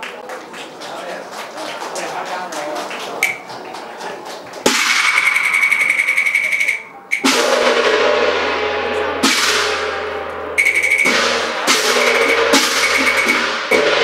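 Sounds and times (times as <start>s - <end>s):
wood-block clacks: 3.2s - 3.9s, 4.5s - 7.5s, 10.6s - 14.0s
gongs and cymbals crashing: 4.7s - 14.0s.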